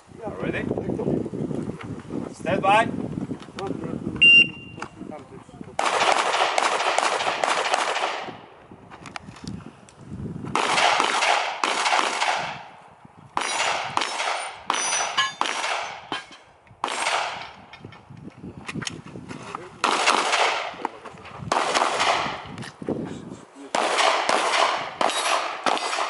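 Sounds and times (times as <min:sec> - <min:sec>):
handgun rapid shots: 0:05.8 - 0:08.3, 0:10.6 - 0:12.6, 0:13.4 - 0:16.0, 0:16.8 - 0:17.4, 0:19.8 - 0:20.7, 0:23.8 - 0:26.0.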